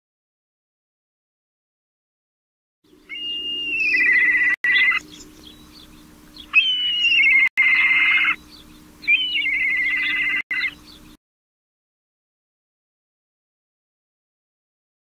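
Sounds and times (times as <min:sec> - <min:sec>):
raptor whistling call with trill: 0:02.9 - 0:11.2.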